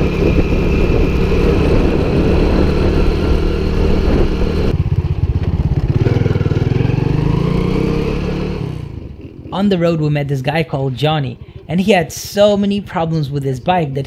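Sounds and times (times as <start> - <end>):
wind rushing: 0.0 - 4.8
small motorbike engine running: 0.0 - 8.9.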